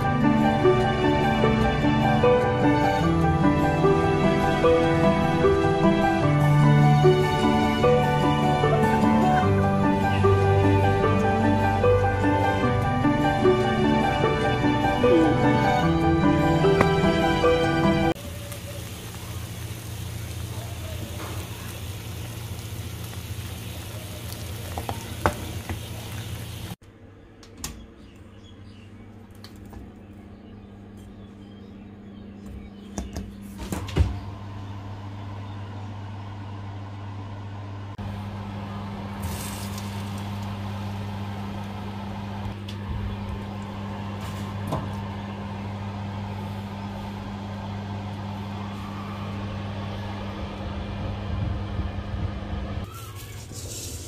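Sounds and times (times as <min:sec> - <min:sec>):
oven electric hum: 0:00.0 - 0:54.0.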